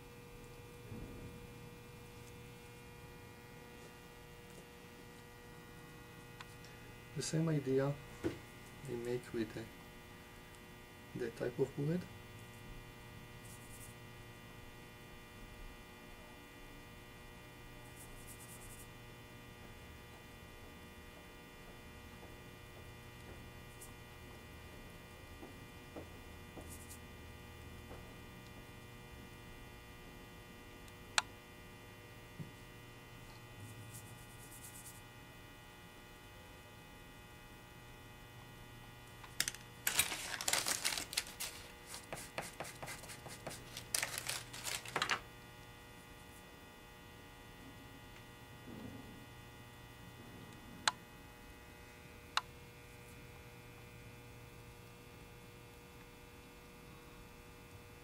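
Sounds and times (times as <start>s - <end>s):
electrical mains hum: 0.0s - 58.0s
paper rustling and clicks: 39.3s - 45.2s
faint brushing: 39.9s - 45.0s.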